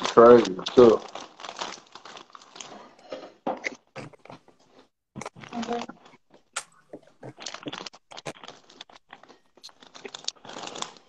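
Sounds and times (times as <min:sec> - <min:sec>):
snack wrapper crinkling: 0:00.0 - 0:11.0
crunchy food being eaten: 0:03.6 - 0:11.0.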